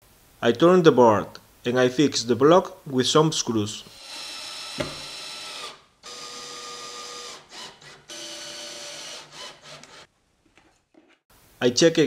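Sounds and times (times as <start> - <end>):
cordless drill motor whirring: 3.9 - 10.1
knock: 4.8 - 5.0.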